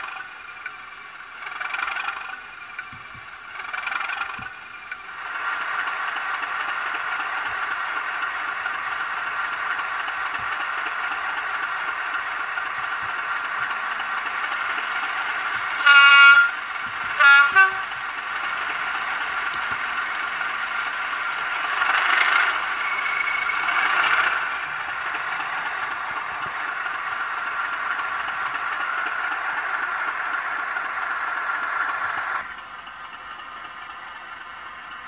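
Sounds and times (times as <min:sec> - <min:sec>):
model diesel engine sound through speaker: 0:00.0 - 0:35.0
train horn blasts: 0:15.6 - 0:18.1.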